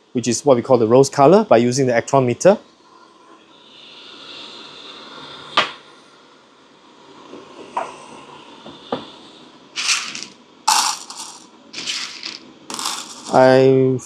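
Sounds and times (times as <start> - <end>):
faint hiss: 0.0 - 14.0
small objects clicking: 9.8 - 13.4.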